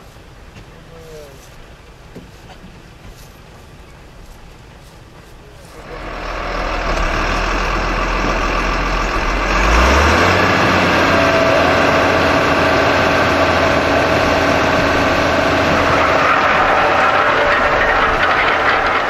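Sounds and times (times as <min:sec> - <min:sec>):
diesel engine running: 0:05.8 - 0:19.0
beets rattling over rollers: 0:10.8 - 0:19.0.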